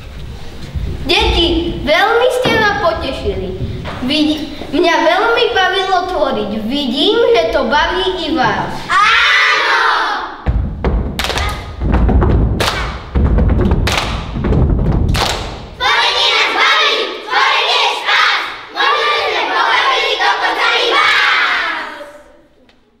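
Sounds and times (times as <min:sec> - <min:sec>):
loud thumps: 0:00.0 - 0:05.5, 0:10.4 - 0:16.6
children chanting in unison: 0:08.9 - 0:10.4, 0:15.8 - 0:22.4
children shouting together: 0:08.9 - 0:10.4, 0:15.8 - 0:22.4
hand claps: 0:11.2 - 0:11.8, 0:12.6 - 0:13.1, 0:13.8 - 0:14.4, 0:15.1 - 0:15.7.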